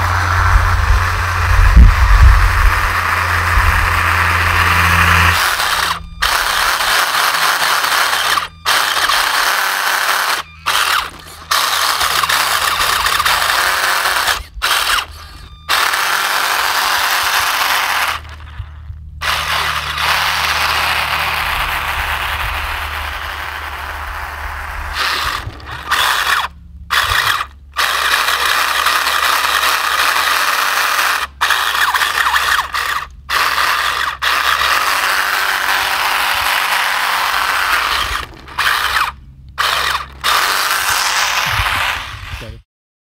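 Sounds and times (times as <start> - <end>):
toy car electric motor whining: 0.0 - 42.6.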